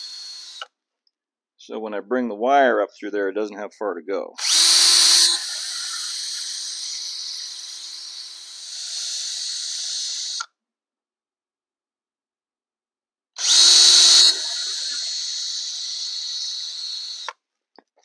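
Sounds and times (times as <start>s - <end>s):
cordless drill drilling: 0.0s - 0.7s, 4.4s - 10.5s, 13.4s - 17.4s.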